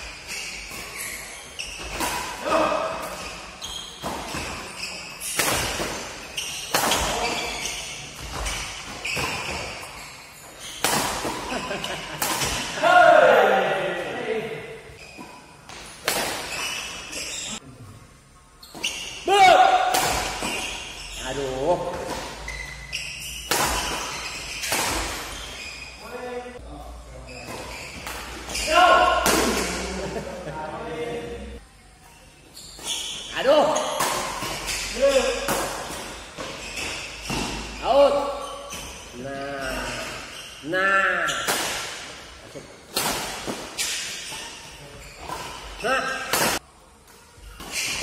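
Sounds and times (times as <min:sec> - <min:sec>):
badminton rackets hitting shuttlecock: 0:00.0 - 0:10.0, 0:10.6 - 0:12.8, 0:15.7 - 0:17.3, 0:18.7 - 0:21.0, 0:21.8 - 0:25.6, 0:32.7 - 0:39.1, 0:41.4 - 0:48.0
rackets hitting shuttlecock: 0:10.7 - 0:12.8, 0:18.7 - 0:20.9, 0:23.3 - 0:25.4, 0:33.7 - 0:39.0, 0:42.8 - 0:44.6, 0:45.2 - 0:46.6.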